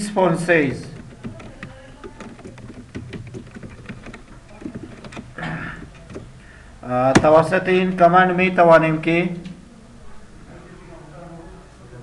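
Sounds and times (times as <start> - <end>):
keyboard key clicks: 1.0 - 6.3.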